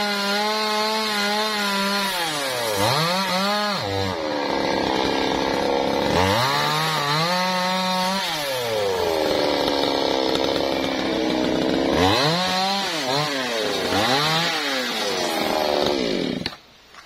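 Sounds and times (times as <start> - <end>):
chainsaw revving: 0.0 - 16.6.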